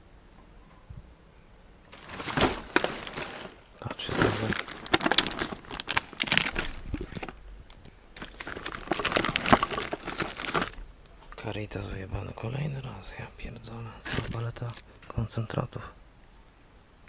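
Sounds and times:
plastic bags crinkling: 1.9 - 11.4, 14.0 - 14.8.

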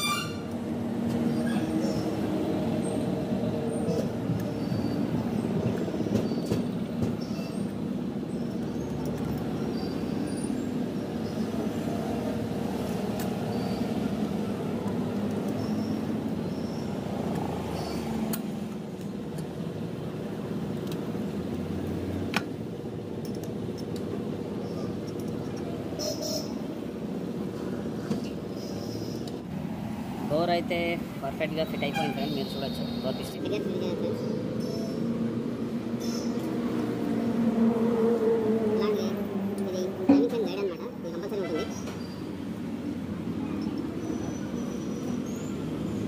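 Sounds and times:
light metallic clicks and taps: 23.2 - 24.1.

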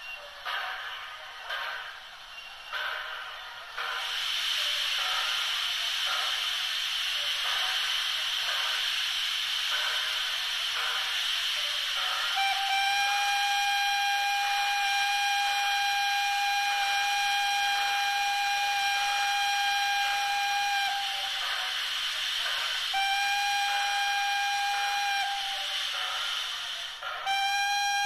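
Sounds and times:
steam hissing: 0.0 - 28.0
steam whistle blasts: 12.0 - 21.4, 22.8 - 26.4, 27.2 - 28.0.

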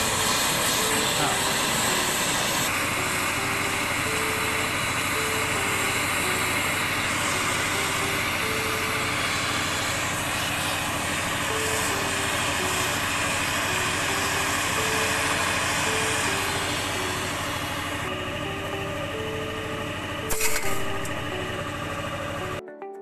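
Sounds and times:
blow torch burning: 0.0 - 2.7.

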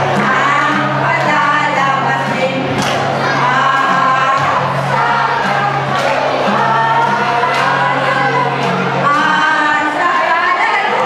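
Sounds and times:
acoustic guitar: 0.0 - 11.0
mixed choir singing: 0.0 - 11.0.

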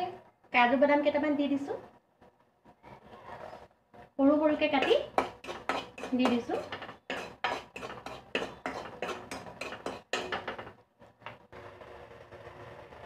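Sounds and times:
metal spoon scraping a pan: 4.7 - 10.7.

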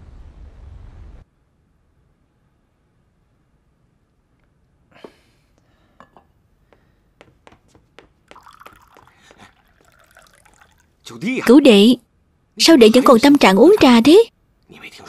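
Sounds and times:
tea pouring into a cup: 8.3 - 11.4
ceramic teaware clinking: 8.4 - 10.8.

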